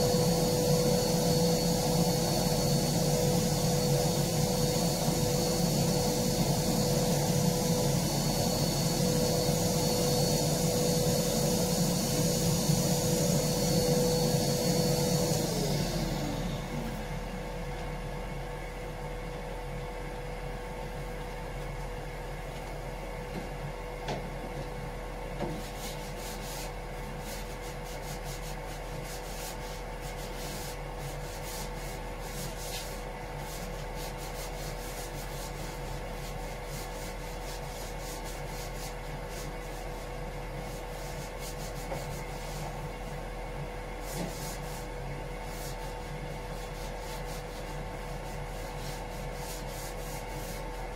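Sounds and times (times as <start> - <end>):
steady mechanical hum: 0.0 - 50.9
scratchy sanding strokes: 25.6 - 43.2, 44.0 - 50.9.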